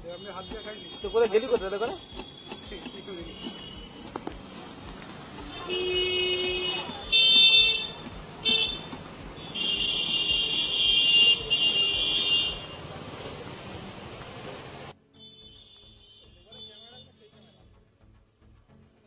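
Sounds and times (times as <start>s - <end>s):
vehicle horns blasting: 0.0s - 4.4s, 5.4s - 12.9s, 15.1s - 17.6s
street noise: 0.0s - 19.0s.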